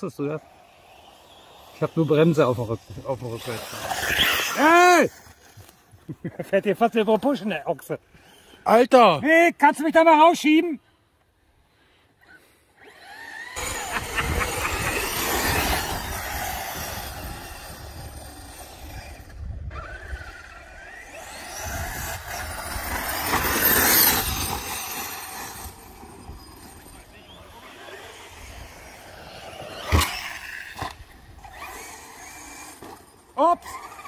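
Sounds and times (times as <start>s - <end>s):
electric motor whine: 12.8s - 34.0s.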